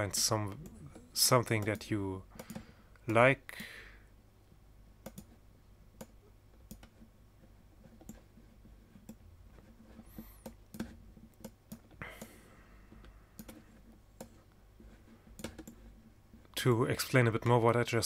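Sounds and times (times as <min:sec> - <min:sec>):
computer mouse clicking: 0:00.2 - 0:02.7, 0:05.0 - 0:05.4, 0:06.0 - 0:07.1, 0:07.8 - 0:08.3, 0:08.9 - 0:16.0.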